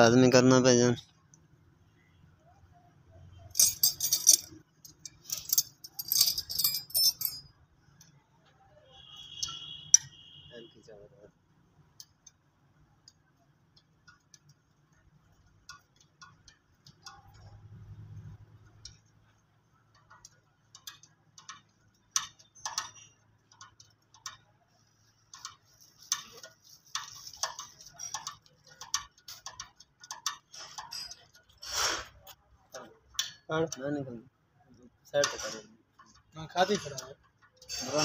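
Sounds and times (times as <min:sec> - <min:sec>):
spanner and bolts clinking: 0:03.5 - 0:07.6, 0:25.3 - 0:31.6.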